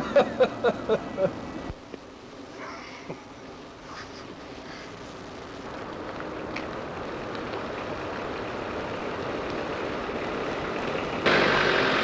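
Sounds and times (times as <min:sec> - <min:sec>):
minivan approaching on dirt road: 0:03.3 - 0:12.0.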